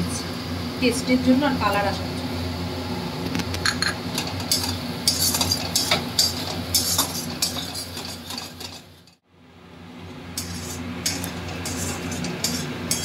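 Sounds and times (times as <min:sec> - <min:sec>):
low hum: 0:00.0 - 0:05.2
metal spatula scraping a pan: 0:04.2 - 0:09.2, 0:10.4 - 0:13.0.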